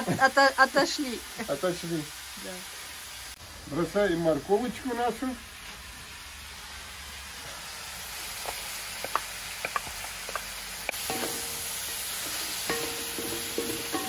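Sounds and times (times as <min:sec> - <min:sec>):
food sizzling in a wok: 0:00.0 - 0:14.0
wooden spatula scraping a pan: 0:11.0 - 0:14.0.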